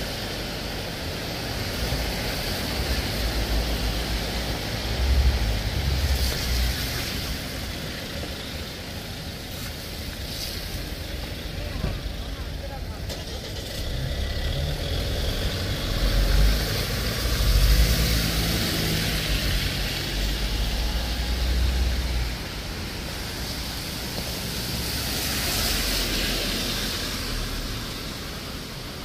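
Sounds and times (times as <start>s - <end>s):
car engine and tyre rumble: 0.0s - 29.0s
tyres hissing on wet asphalt: 0.0s - 29.0s.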